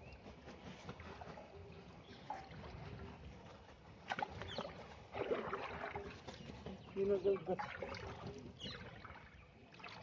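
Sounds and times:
hand stirring shallow water: 0:04.0 - 0:06.4
water splashes: 0:04.0 - 0:10.0.

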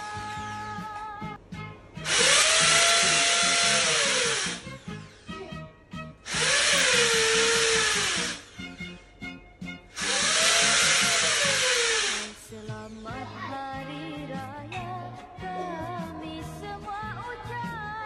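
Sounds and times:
power drill spinning: 0:02.0 - 0:05.4, 0:06.2 - 0:09.0, 0:09.9 - 0:12.5.

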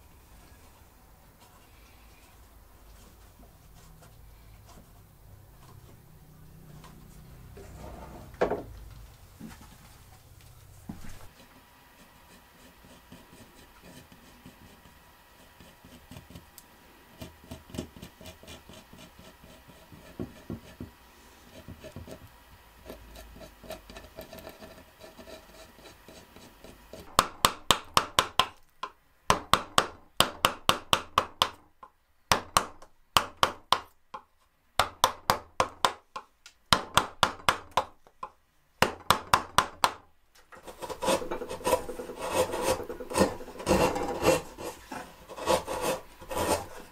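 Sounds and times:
pencil scratching on wood: 0:11.3 - 0:16.5, 0:17.1 - 0:27.2, 0:40.6 - 0:46.9
hand tool rasping across wood: 0:11.4 - 0:16.5, 0:17.2 - 0:22.2, 0:22.8 - 0:27.1, 0:40.6 - 0:46.9.

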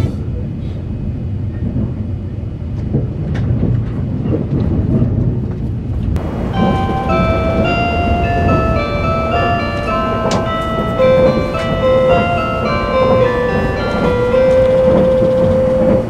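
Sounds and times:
train wheels rumbling on rail: 0:00.0 - 0:16.0
on-board chime melody: 0:06.2 - 0:16.0.

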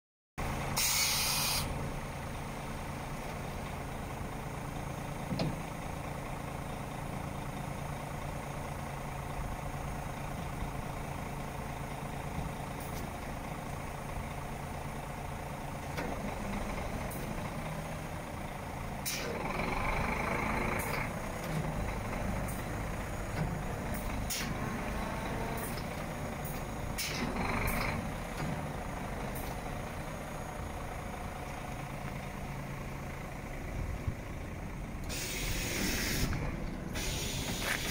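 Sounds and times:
diesel truck engine idling: 0:00.4 - 0:37.9
air brake hiss: 0:00.7 - 0:01.8, 0:19.0 - 0:19.4, 0:27.0 - 0:27.3, 0:35.1 - 0:37.9.

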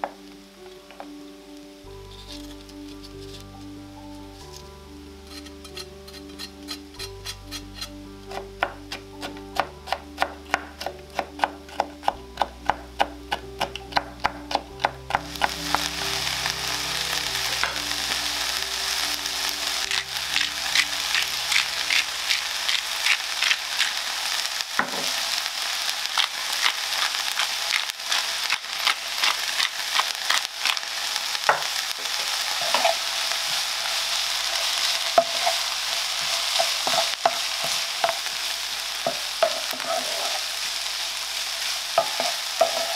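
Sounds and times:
vegetables sizzling in a pan: 0:00.0 - 0:42.9
wooden spatula scraping and tapping: 0:31.5 - 0:33.0, 0:36.2 - 0:38.3, 0:39.0 - 0:40.4, 0:42.0 - 0:42.9.

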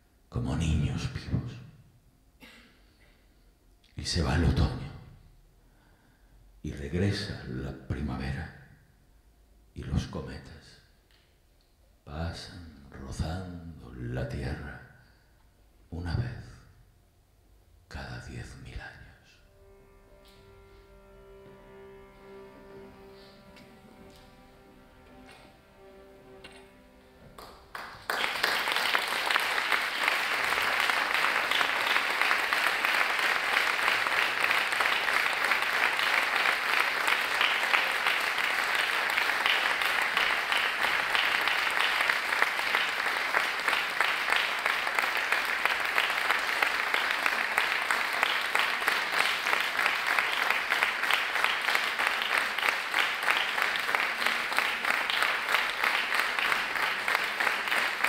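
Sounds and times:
audience applauding: 0:27.3 - 0:58.0.

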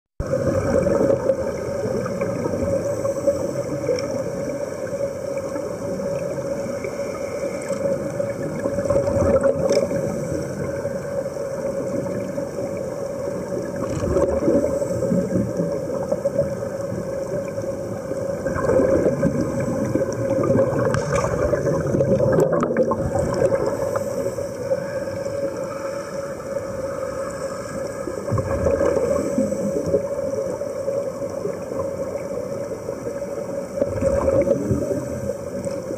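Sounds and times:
air bubbling underwater: 0:00.2 - 0:02.8, 0:08.4 - 0:10.1, 0:13.7 - 0:15.7, 0:18.3 - 0:24.1, 0:28.3 - 0:30.0, 0:33.8 - 0:35.0.

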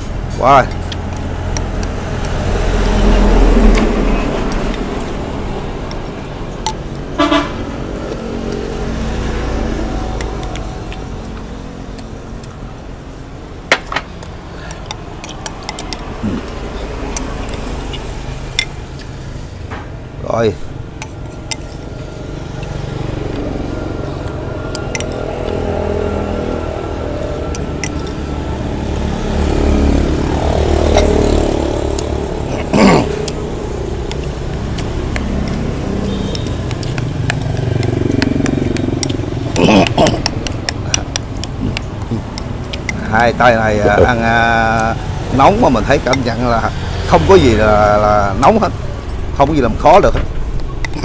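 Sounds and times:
motorbike engines: 0:00.0 - 0:51.0
road traffic: 0:00.0 - 0:51.0
spoons clicking against bowls: 0:00.7 - 0:02.5, 0:05.8 - 0:07.1, 0:14.1 - 0:19.2, 0:21.0 - 0:22.8, 0:24.2 - 0:25.7, 0:26.5 - 0:28.3, 0:34.0 - 0:43.1
spoons and glass clinking on bowls: 0:27.2 - 0:28.2.

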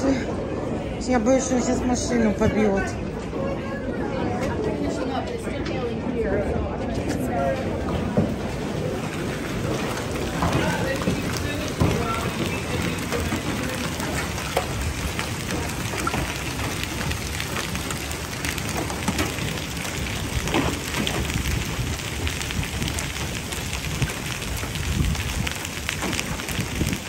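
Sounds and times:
heavy rain on asphalt: 0:07.2 - 0:27.0
hailstones ticking: 0:07.9 - 0:27.0.

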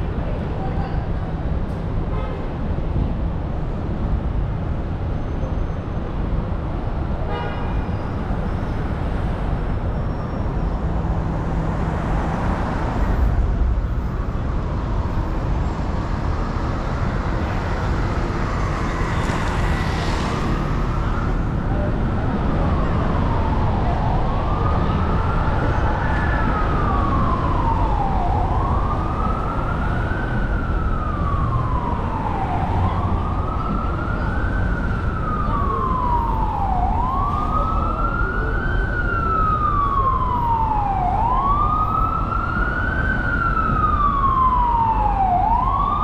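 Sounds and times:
city traffic rumble: 0:00.0 - 0:46.0
emergency siren wailing: 0:10.0 - 0:46.0.

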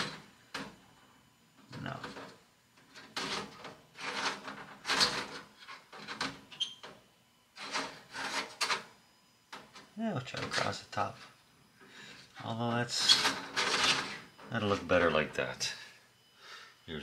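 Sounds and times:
brief squeak: 0:06.6 - 0:06.8
stones scraping on metal: 0:07.6 - 0:08.8.

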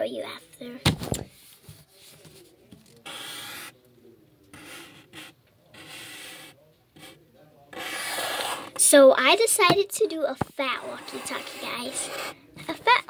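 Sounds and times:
pen scratching on paper: 0:03.0 - 0:03.7, 0:04.5 - 0:08.8, 0:10.7 - 0:12.4.

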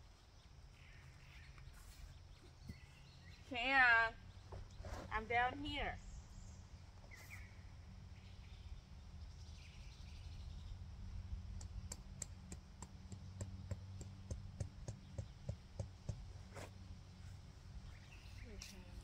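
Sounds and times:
steady low rumble: 0:05.1 - 0:19.0.

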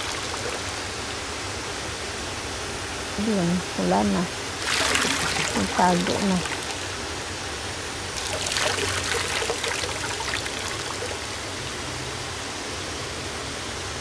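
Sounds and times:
seawater lapping and trickling: 0:00.0 - 0:01.0, 0:04.5 - 0:11.9
hands splashing in water: 0:04.6 - 0:07.1, 0:08.2 - 0:11.5.

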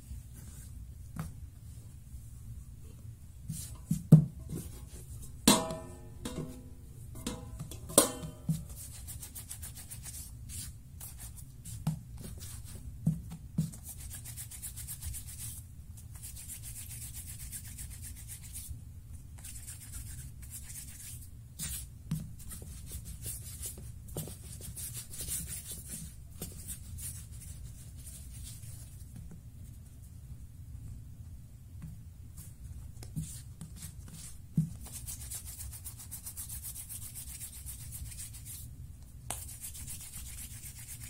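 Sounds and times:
hands rubbing dough: 0:03.4 - 0:05.5, 0:08.4 - 0:30.1, 0:32.3 - 0:41.0.

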